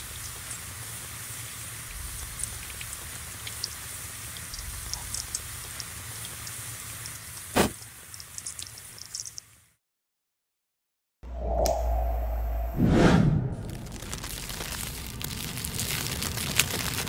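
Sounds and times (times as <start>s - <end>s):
candle wick hissing and crackling: 0.0s - 9.4s, 13.7s - 17.0s.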